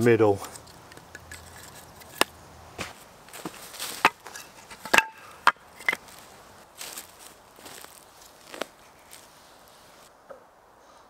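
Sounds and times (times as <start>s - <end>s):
wooden logs knocking: 2.2s - 6.0s.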